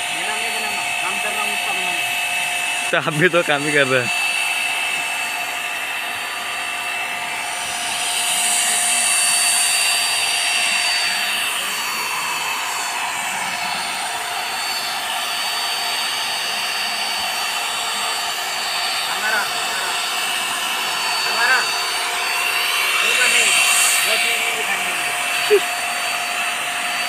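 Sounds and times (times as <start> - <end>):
pressure washer motor whine: 0.0 - 27.0
water jet spraying on tiles: 7.4 - 27.0.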